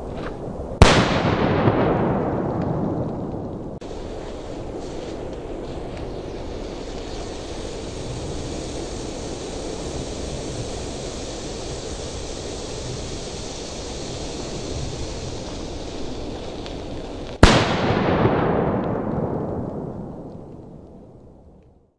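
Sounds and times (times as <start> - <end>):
firecracker bang with echo: 0.8 - 3.8, 17.4 - 20.3
firecracker hissing: 0.8 - 20.8.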